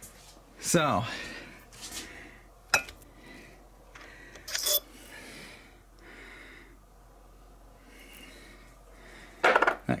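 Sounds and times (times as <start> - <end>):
steel parts clinking: 4.5 - 4.8.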